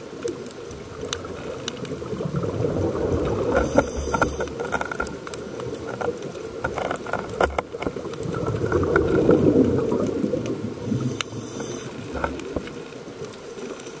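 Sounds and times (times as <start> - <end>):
crackling clicks: 0.0 - 14.0
exhaled bubbles underwater: 0.2 - 4.6, 7.9 - 12.8
regulator inhalation hiss: 3.6 - 4.5, 10.8 - 12.1.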